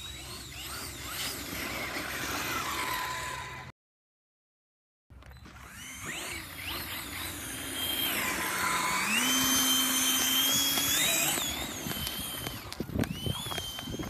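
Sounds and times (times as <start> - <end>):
ducted fan motor whining: 0.0 - 3.7, 5.2 - 14.0.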